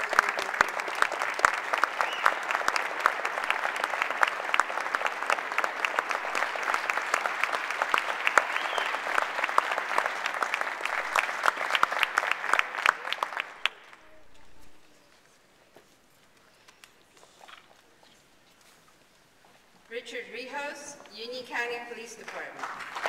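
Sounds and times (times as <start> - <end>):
audience applauding: 0.0 - 14.8, 22.3 - 23.0.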